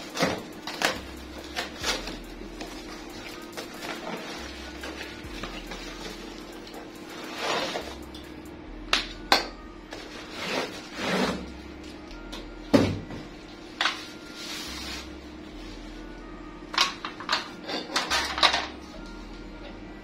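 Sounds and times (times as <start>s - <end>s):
plastic wrapping rustling: 0.0s - 8.0s
faint steady hum: 0.0s - 20.0s.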